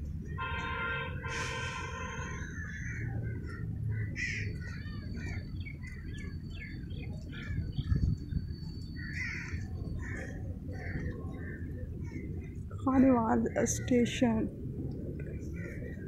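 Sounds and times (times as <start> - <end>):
distant horn: 0.4 - 2.6
crows cawing: 1.3 - 3.3, 3.9 - 4.5, 9.0 - 10.2.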